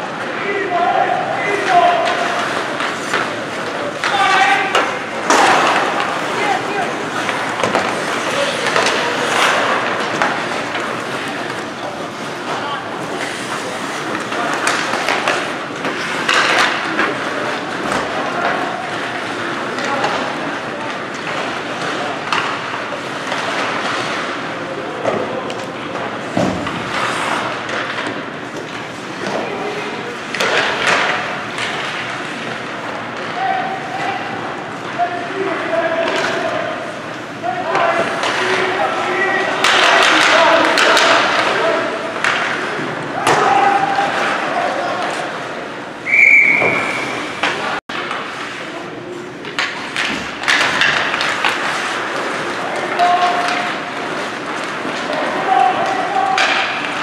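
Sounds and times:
arena noise: 0:00.0 - 0:57.0
spectators' voices: 0:00.0 - 0:57.0
puck and sticks knocking boards: 0:01.4 - 0:45.3, 0:49.4 - 0:57.0
referee's whistle: 0:46.0 - 0:47.3.

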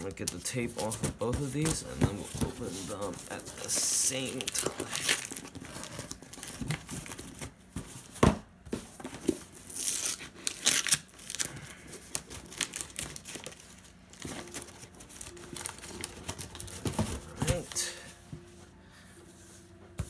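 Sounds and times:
tape ripping off cardboard box: 0:04.4 - 0:07.5, 0:09.3 - 0:11.4.

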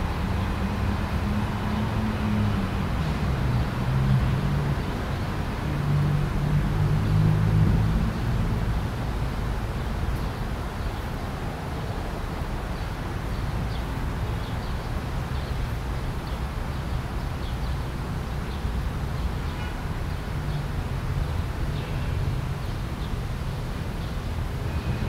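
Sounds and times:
wind rumble on microphone: 0:00.0 - 0:12.8
wind through leafy trees: 0:00.0 - 0:25.0.

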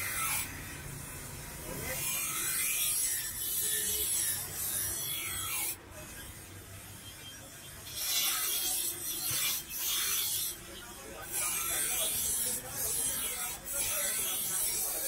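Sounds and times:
knife grinding on grinder wheel: 0:01.7 - 0:06.4, 0:07.7 - 0:15.0.

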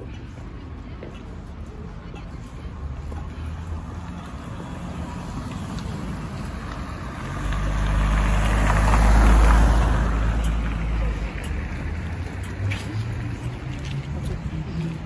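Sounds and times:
car driving past: 0:04.0 - 0:15.0.

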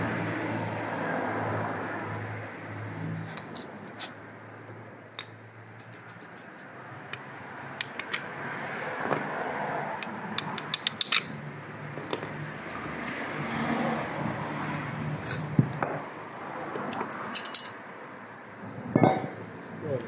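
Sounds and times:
light metallic clinks and knocks: 0:05.1 - 0:08.3, 0:09.0 - 0:09.5, 0:10.4 - 0:12.8, 0:16.9 - 0:17.9, 0:18.9 - 0:19.8.

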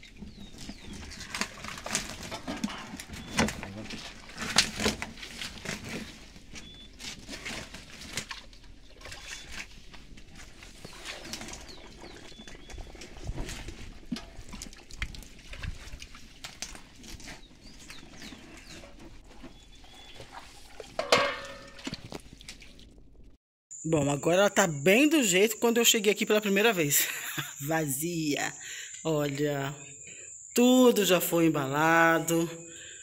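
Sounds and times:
fish flapping in wet net: 0:00.1 - 0:18.8.

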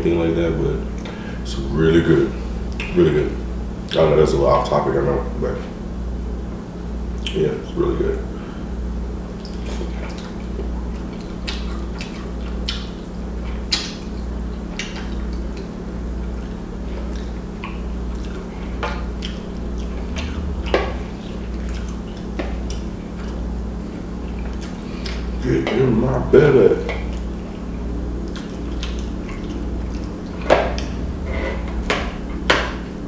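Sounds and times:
low pulsing hum: 0:00.0 - 0:33.0
wet chewing and lip smacks: 0:09.3 - 0:25.4, 0:26.8 - 0:31.2.

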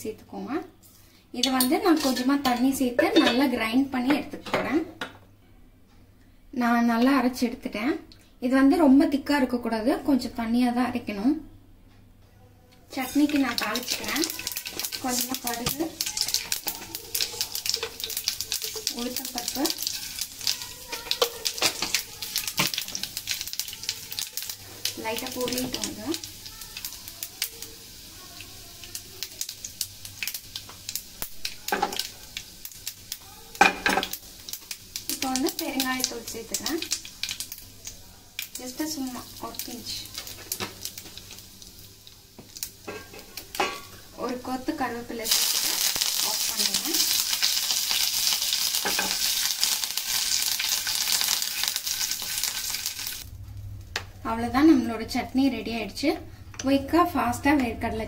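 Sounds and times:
seeds sizzling in hot oil: 0:00.9 - 0:02.9, 0:12.9 - 0:53.3
seeds spluttering crackles: 0:45.2 - 0:53.2.

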